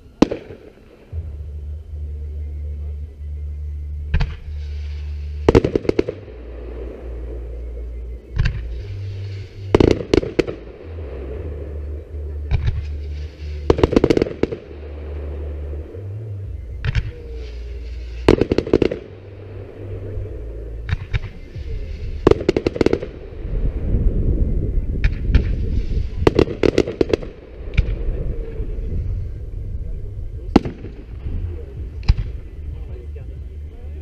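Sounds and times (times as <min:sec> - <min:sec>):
fireworks crackling bangs: 0:00.0 - 0:01.6, 0:04.1 - 0:07.5, 0:08.3 - 0:11.8, 0:12.5 - 0:16.1, 0:16.8 - 0:19.8, 0:20.8 - 0:24.2, 0:24.9 - 0:29.2, 0:30.3 - 0:33.0
steady low rumble: 0:00.0 - 0:34.0.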